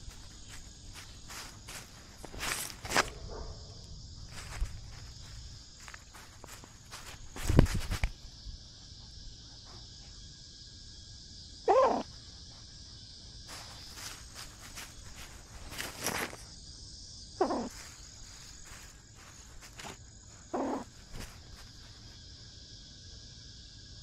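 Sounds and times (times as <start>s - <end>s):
rustling steps: 0.0s - 3.2s, 4.3s - 8.2s, 13.5s - 16.5s, 17.7s - 22.2s
crickets chirping: 0.0s - 24.0s.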